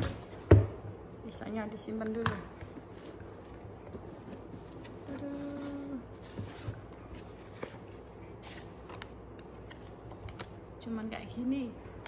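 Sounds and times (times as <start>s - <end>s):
cardboard and paper rustling: 2.8s - 10.4s
person humming: 5.1s - 6.1s.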